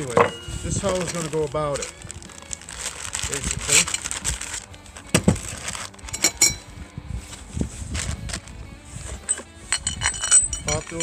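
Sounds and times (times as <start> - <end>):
metal parts clinking: 6.0 - 6.7, 9.0 - 11.0.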